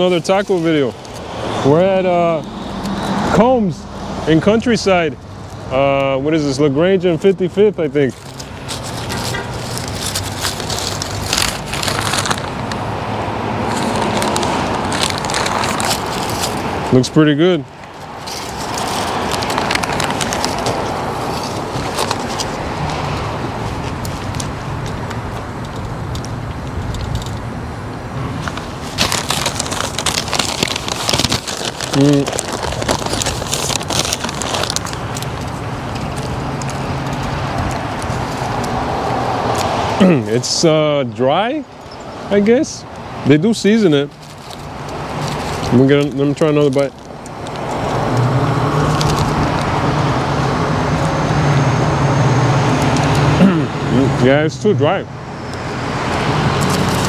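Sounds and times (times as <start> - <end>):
foil and paper wrapping crinkling: 0.0 - 2.0, 6.4 - 12.8, 13.7 - 17.3, 17.9 - 25.1, 28.4 - 40.4, 43.5 - 49.7, 56.6 - 57.0
low hum of road traffic: 0.0 - 57.0.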